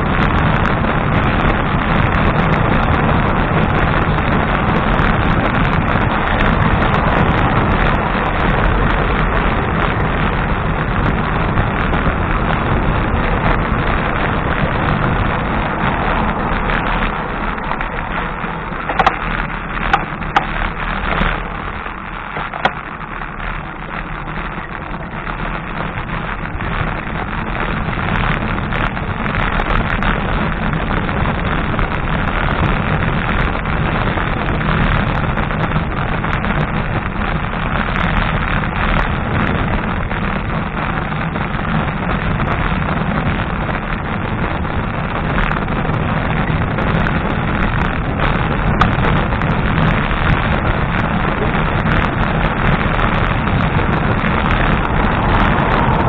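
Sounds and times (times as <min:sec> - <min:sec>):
bicycle tyre and road rumble: 0:00.0 - 0:56.0
wind rushing over microphone: 0:00.0 - 0:56.0.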